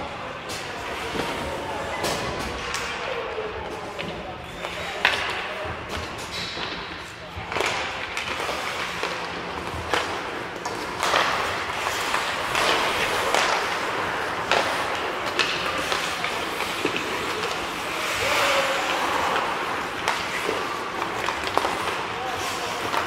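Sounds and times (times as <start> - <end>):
hockey sticks and puck clacking: 0.2 - 23.0
skate blades scraping ice: 5.9 - 23.0.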